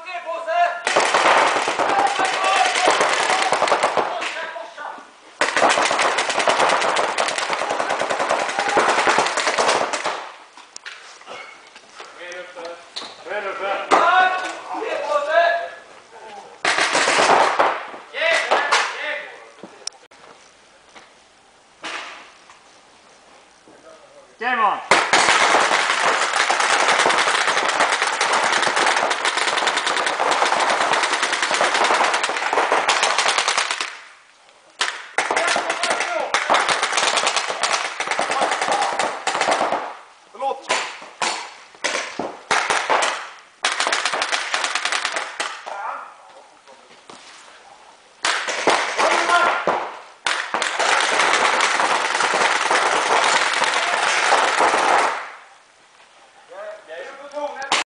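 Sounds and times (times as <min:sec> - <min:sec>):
paintball markers firing: 0:00.9 - 0:04.3, 0:05.4 - 0:10.3, 0:24.9 - 0:34.1, 0:34.8 - 0:40.0, 0:40.7 - 0:45.7.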